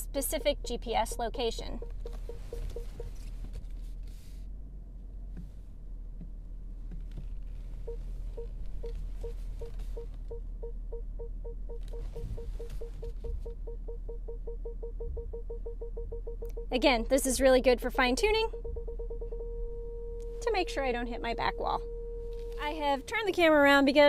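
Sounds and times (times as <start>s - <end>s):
parking sensor beeps: 0.0s - 3.4s, 7.8s - 24.0s
steady low hum: 0.0s - 24.0s.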